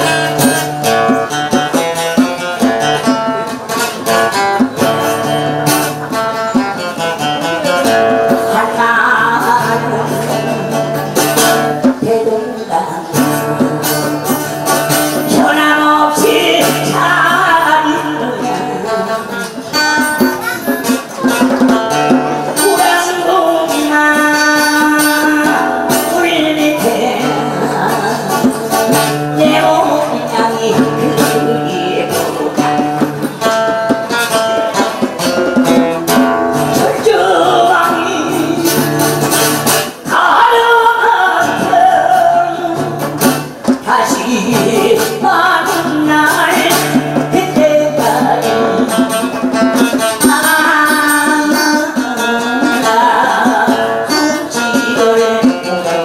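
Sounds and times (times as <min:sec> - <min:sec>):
acoustic guitar strumming: 0:00.0 - 0:56.0
djembe drumming: 0:00.0 - 0:56.0
man singing: 0:22.3 - 0:33.2, 0:35.6 - 0:56.0.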